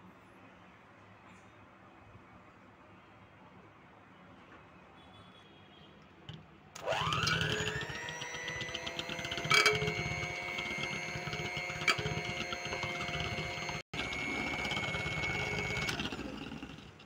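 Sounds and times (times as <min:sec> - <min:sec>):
electric hand mixer whine: 0:06.8 - 0:17.0.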